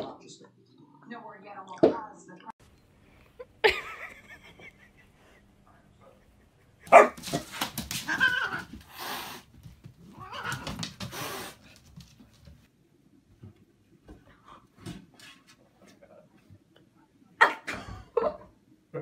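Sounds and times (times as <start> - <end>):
dog barking: 6.9 - 7.5.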